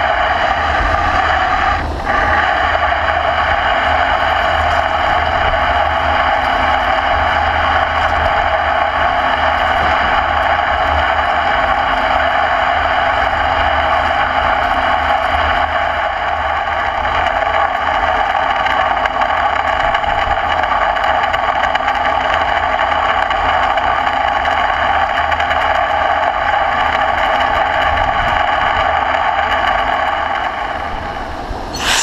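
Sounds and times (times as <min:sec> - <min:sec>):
low machine hum: 0:00.0 - 0:19.0
lathe tool cutting steel: 0:31.7 - 0:32.0.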